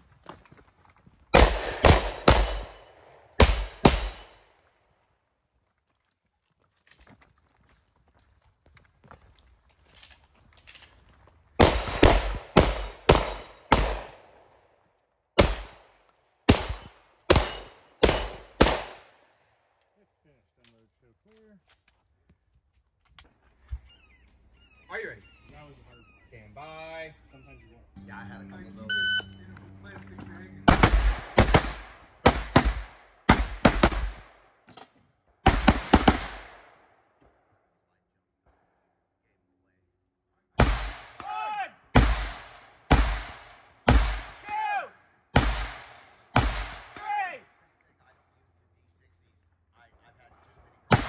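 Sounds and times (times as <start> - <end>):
close gunshots: 1.3 - 4.4, 11.6 - 14.4, 15.4 - 19.2, 30.6 - 34.4, 35.4 - 36.8, 40.6 - 41.3, 41.9 - 44.5, 45.4 - 47.2
gunshots in quick strings: 1.4 - 2.8, 3.4 - 4.4, 30.6 - 34.2.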